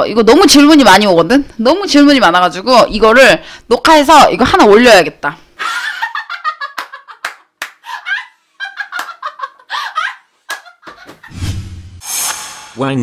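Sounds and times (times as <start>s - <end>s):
sharp claps or slaps: 6.8s - 7.8s
woman shrieking and laughing: 7.8s - 11.3s.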